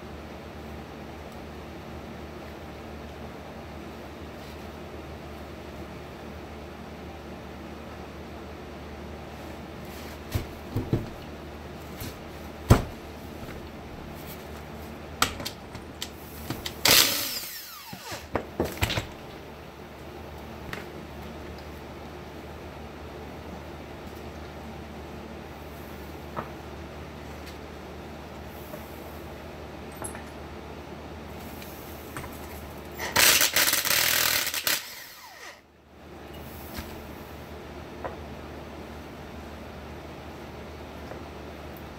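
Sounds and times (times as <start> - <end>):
cordless power tool whine: 16.8 - 18.4, 33.0 - 35.6.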